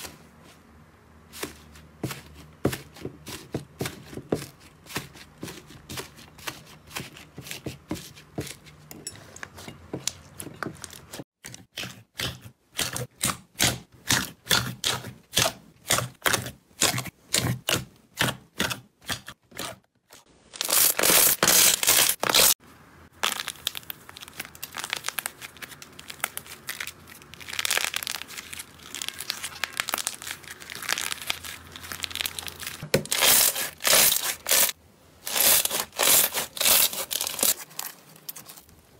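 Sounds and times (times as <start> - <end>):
sticky slime squelching: 1.3 - 8.9, 9.5 - 38.9
fluffy slime crackling and popping: 20.5 - 34.7.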